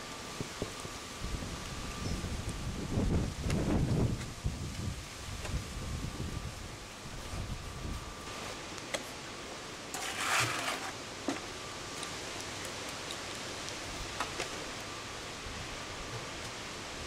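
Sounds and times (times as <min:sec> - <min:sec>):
steady outdoor hiss: 0:00.0 - 0:17.0
trowel scraping: 0:09.9 - 0:11.0.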